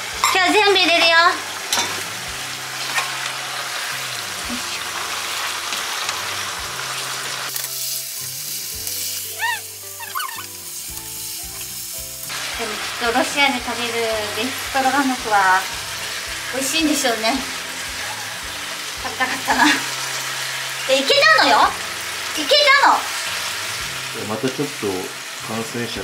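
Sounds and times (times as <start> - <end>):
food sizzling in a frying pan: 0.0 - 26.0
quiet background music: 0.0 - 26.0.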